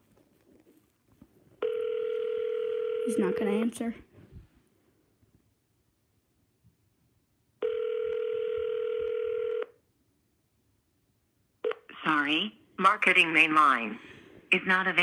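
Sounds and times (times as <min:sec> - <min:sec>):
telephone ringback tone: 0:01.6 - 0:03.7, 0:07.6 - 0:09.8.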